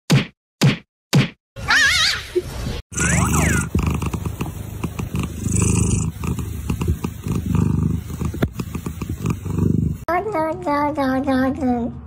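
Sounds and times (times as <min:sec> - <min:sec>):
cat purring: 0:03.0 - 0:10.1.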